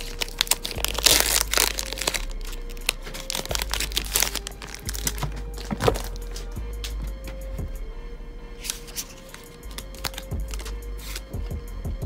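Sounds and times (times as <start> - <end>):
foil pack crinkling: 0.0 - 6.5, 8.7 - 11.3.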